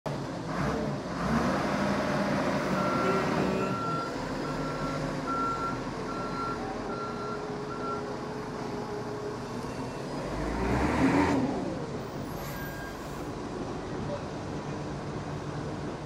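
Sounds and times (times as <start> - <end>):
forklift engine running under load: 0.1 - 16.0
reversing alarm beeping: 2.7 - 8.0.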